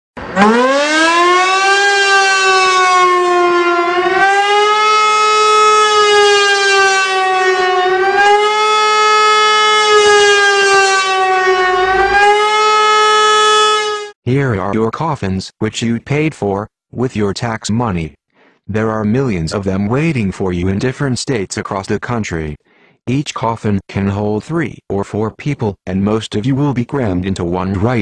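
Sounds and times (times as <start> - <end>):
siren wailing: 0.2 - 14.2.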